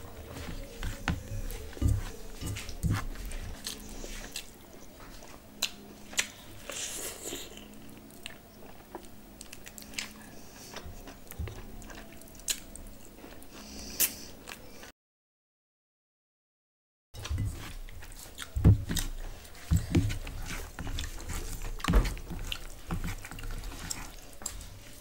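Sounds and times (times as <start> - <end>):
biting and chewing food: 0.0 - 14.7, 17.2 - 25.0.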